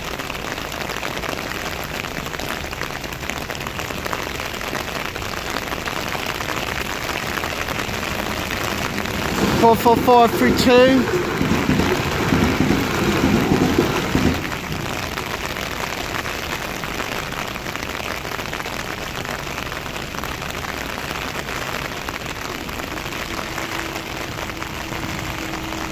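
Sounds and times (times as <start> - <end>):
heavy rain on road: 0.0 - 25.9
electric train rumbling past: 7.0 - 16.0, 21.8 - 25.9.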